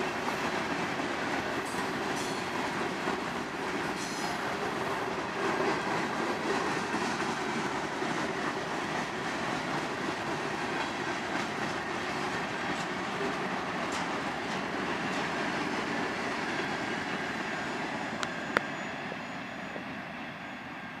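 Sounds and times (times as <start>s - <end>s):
train clicks: 0.0s - 16.7s
train wheels rumbling on rails: 0.0s - 21.0s.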